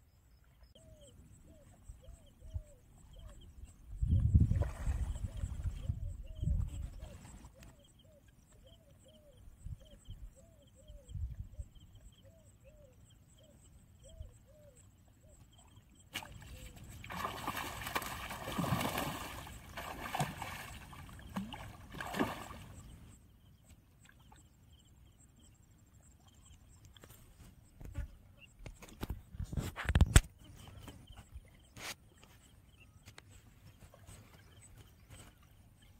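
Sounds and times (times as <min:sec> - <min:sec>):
fish thrashing and splashing: 0:17.0 - 0:22.8.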